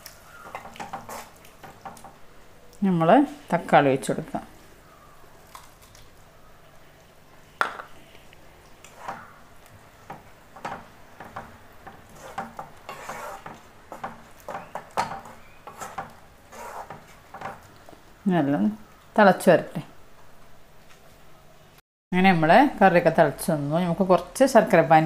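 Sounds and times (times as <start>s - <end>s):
spatula scraping a pan: 0.4s - 2.2s, 8.9s - 17.7s.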